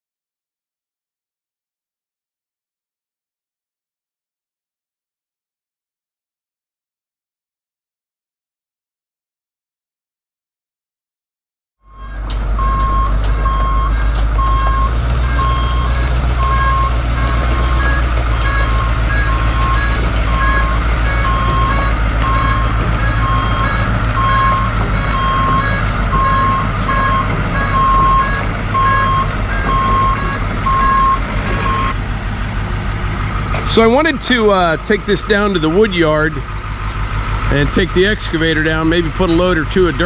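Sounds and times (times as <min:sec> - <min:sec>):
idling truck engine rumble: 0:11.8 - 0:40.0
truck backup alarm beeping: 0:11.8 - 0:40.0.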